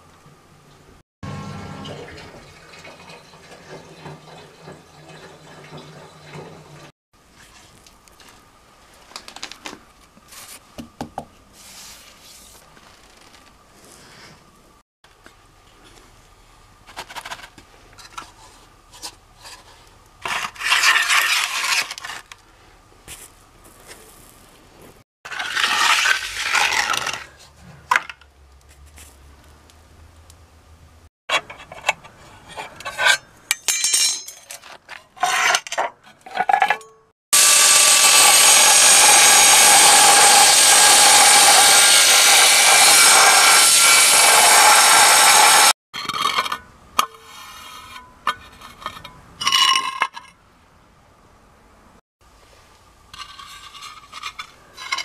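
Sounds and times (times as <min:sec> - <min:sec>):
float scraping wet concrete: 0:17.0 - 0:23.2, 0:23.8 - 0:29.2, 0:34.5 - 0:36.8, 0:45.4 - 0:50.3, 0:53.1 - 0:55.0
angle grinder cutting: 0:37.4 - 0:45.8.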